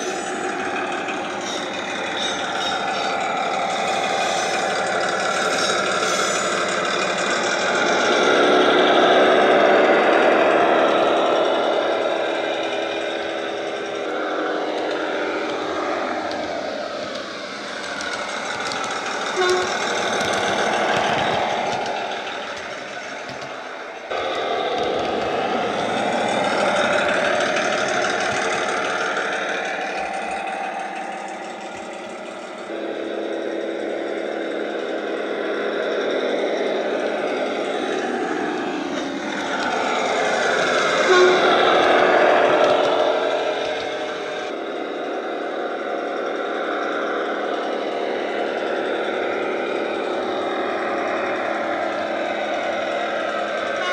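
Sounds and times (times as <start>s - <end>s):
diesel railbus engine: 0.0s - 53.9s
short tone: 19.3s - 19.9s, 41.0s - 41.5s.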